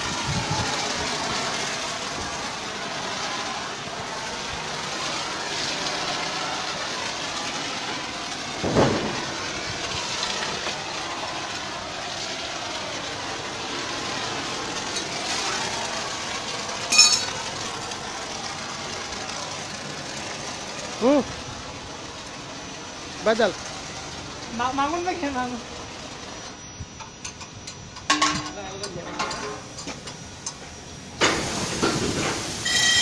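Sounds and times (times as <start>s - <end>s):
foam spray hissing: 0.0s - 26.4s, 30.8s - 33.0s
foam washing machine running: 0.0s - 33.0s
short high-pitched squeak: 32.6s - 33.0s.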